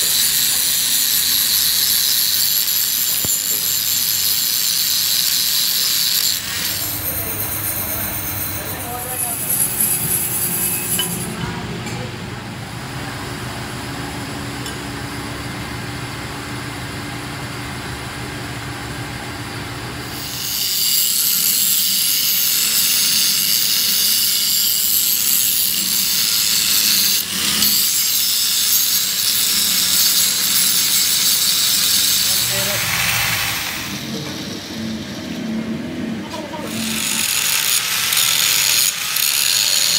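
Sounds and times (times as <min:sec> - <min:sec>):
angle grinder grinding metal: 0:00.0 - 0:11.4, 0:20.2 - 0:35.4, 0:36.3 - 0:39.9.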